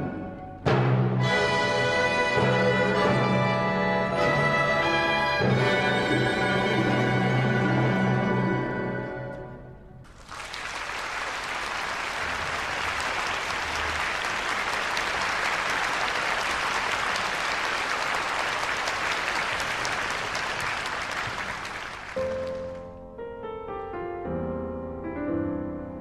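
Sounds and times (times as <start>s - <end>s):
audience applauding: 10.1s - 22.9s.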